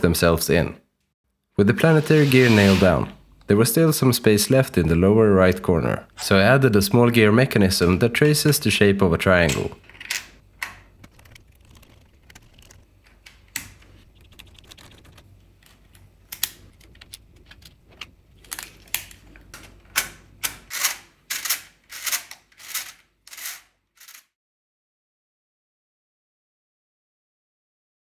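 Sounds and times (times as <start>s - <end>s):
plastic gear parts clicking: 20.4s - 24.3s.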